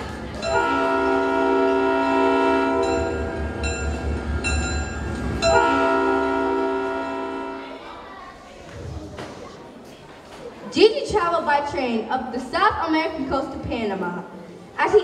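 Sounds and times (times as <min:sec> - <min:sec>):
train horn chords: 0:00.4 - 0:03.7, 0:05.4 - 0:07.8.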